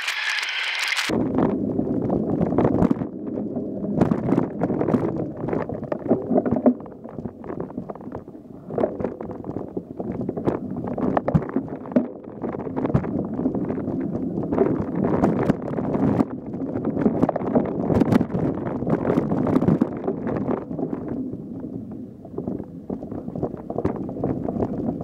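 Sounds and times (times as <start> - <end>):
wind buffeting microphone: 1.1 - 25.0.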